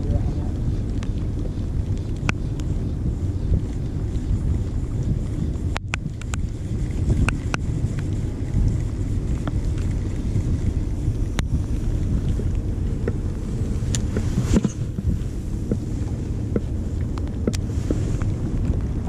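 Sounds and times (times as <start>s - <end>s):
wind buffeting microphone: 0.0s - 19.0s
sharp clicks and taps: 16.5s - 17.6s.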